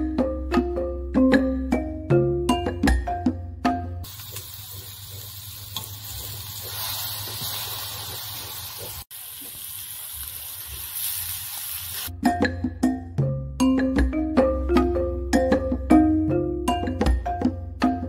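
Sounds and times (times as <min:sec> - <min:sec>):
music: 0:00.0 - 0:04.1, 0:12.1 - 0:18.0
greens sizzling in a wok: 0:04.0 - 0:12.1.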